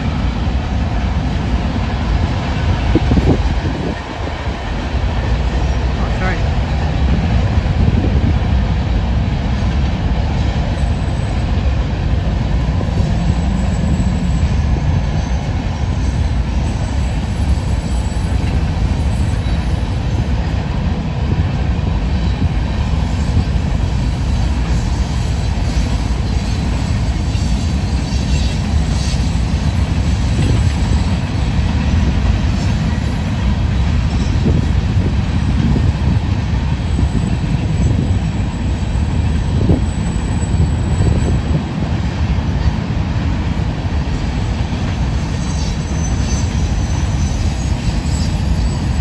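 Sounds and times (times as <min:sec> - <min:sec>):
freight train wheels rumbling: 0:00.0 - 0:49.0
faint wheel squeal: 0:12.9 - 0:19.8, 0:45.1 - 0:49.0.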